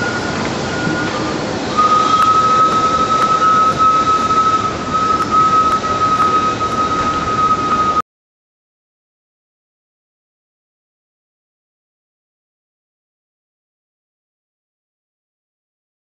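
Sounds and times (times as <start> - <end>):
high-pitched wheel squeal: 0.0 - 8.0
train rolling past: 0.0 - 8.0.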